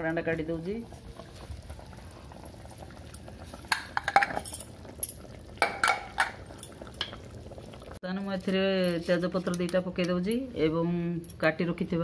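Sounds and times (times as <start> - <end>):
metal clinking on pressure cooker: 3.7 - 6.8.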